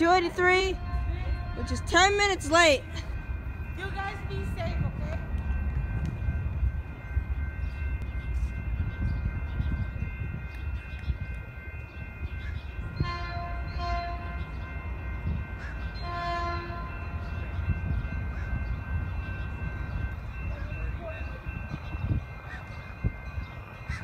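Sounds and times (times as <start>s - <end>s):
low train rumble: 0.0s - 24.0s
train horn blasts: 13.0s - 14.6s, 16.0s - 17.2s.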